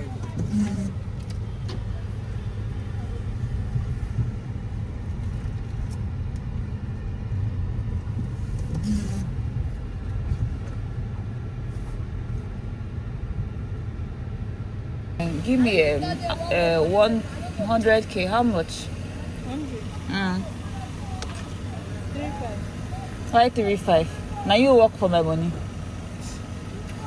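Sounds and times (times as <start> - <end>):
traffic rumble: 0.0 - 27.0.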